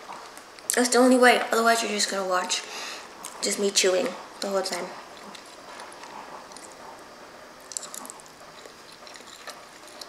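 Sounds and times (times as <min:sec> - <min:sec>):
wet chewing and smacking: 0:04.3 - 0:10.0.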